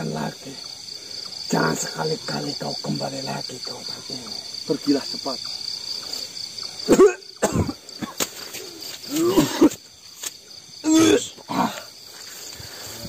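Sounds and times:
crickets chirping: 0.0 - 13.0
man groaning and crying out: 9.1 - 9.8, 10.8 - 11.9.

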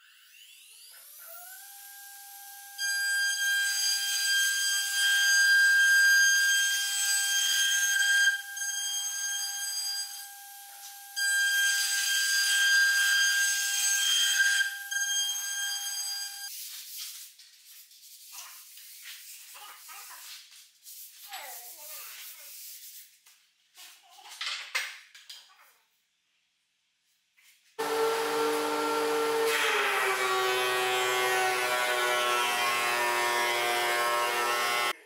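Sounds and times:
router spindle whining: 27.8 - 34.9
router bit cutting wood: 27.8 - 35.0.

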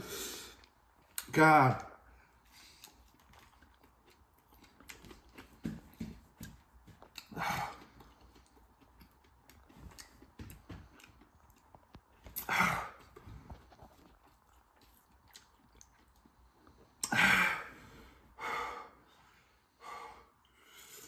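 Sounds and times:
man huffing and sniffing: 7.2 - 8.0, 12.3 - 13.7.

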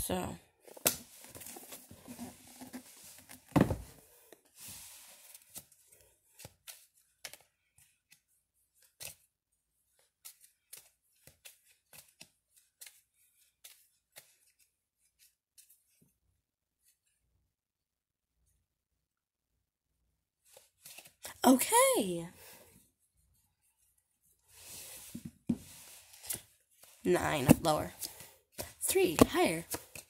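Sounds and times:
book knocking on bookshelf: 3.5 - 4.0.

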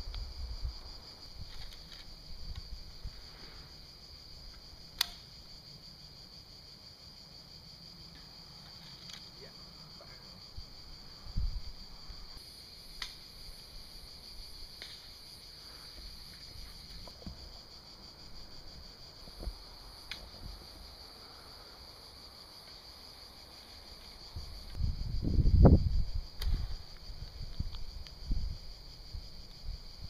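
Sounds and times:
insects chorus: 0.0 - 30.0
faint clicks: 5.0 - 5.2.

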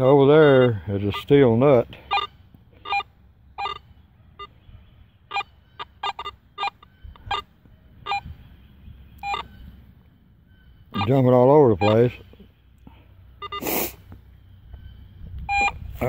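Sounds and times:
metal detector short beeps: 0.0 - 1.4, 2.1 - 3.8, 5.3 - 8.4, 9.2 - 9.8, 10.5 - 12.2, 13.4 - 13.9, 14.8 - 16.0.

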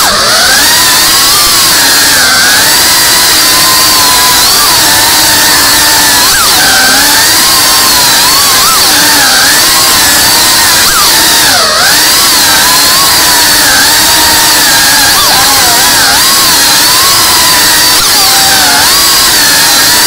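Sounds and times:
drone motors whining: 0.0 - 20.0.

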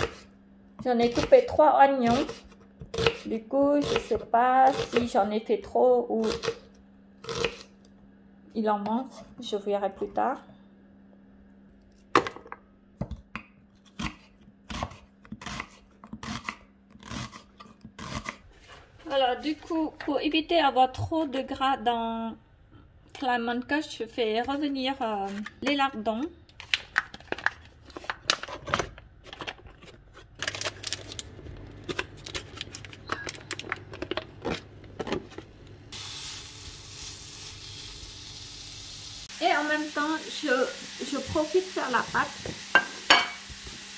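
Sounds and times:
plastic packet crinkling: 29.2 - 35.0
meat sizzling in pan: 35.9 - 43.9.

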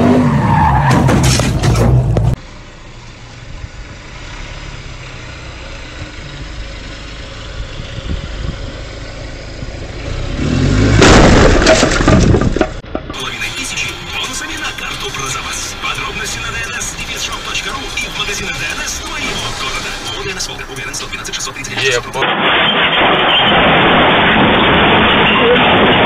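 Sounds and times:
truck engine revving hard: 0.0 - 2.4, 9.9 - 11.8, 13.2 - 26.0
loud noisy surge: 13.2 - 26.0.

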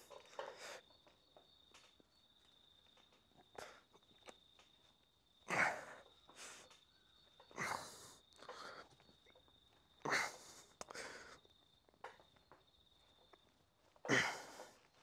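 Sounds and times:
man breathing hard: 0.4 - 0.8, 7.5 - 9.0, 10.0 - 11.5, 14.1 - 14.9.

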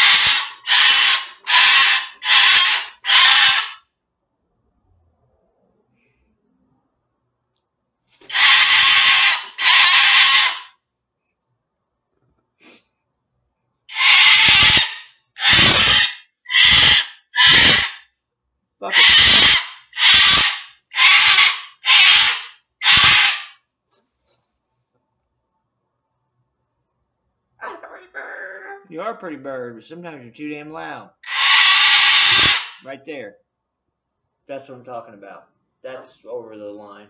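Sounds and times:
cockatoo screeching: 0.0 - 3.9, 8.2 - 10.8, 13.9 - 18.1, 18.8 - 23.6, 27.6 - 28.9, 31.1 - 32.9.

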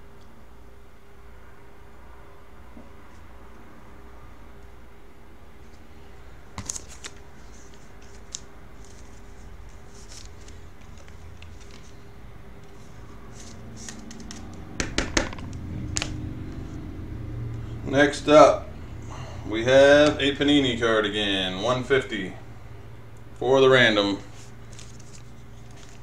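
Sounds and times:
low hum: 11.0 - 23.4.

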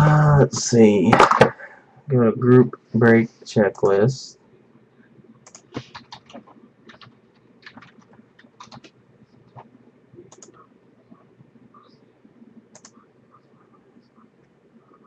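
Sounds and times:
keyboard typing clicks: 5.4 - 9.7, 10.3 - 10.6, 12.7 - 13.0.

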